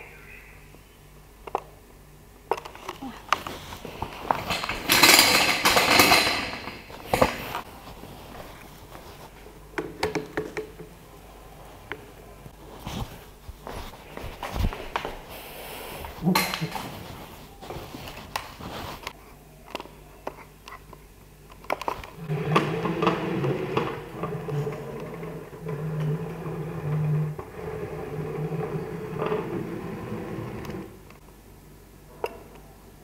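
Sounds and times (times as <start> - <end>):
scattered clicks and knocks: 2.5 - 7.7, 9.8 - 10.9
robot arm motors humming: 22.1 - 31.2.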